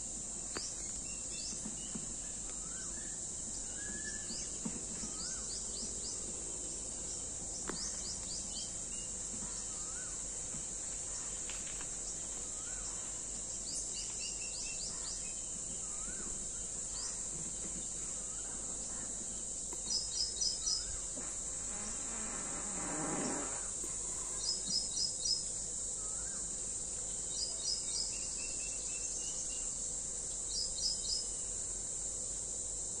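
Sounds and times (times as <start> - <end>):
high-pitched insect drone: 19.8 - 32.0.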